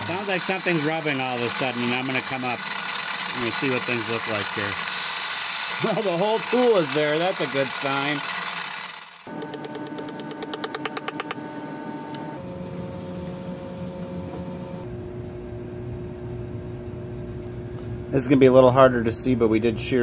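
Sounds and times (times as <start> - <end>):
milling machine motor humming: 0.0 - 14.9.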